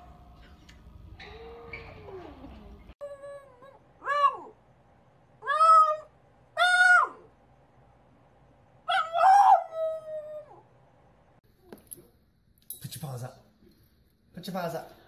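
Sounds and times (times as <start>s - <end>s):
dog howling: 1.2s - 4.6s, 5.4s - 7.3s, 8.9s - 10.7s.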